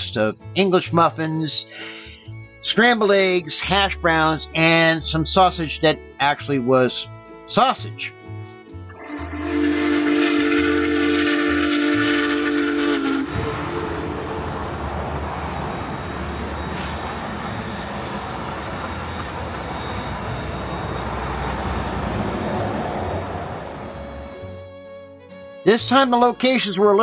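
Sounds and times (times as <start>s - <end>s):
steam locomotive whistle: 8.9s - 24.6s
train rumbling by: 8.9s - 24.8s.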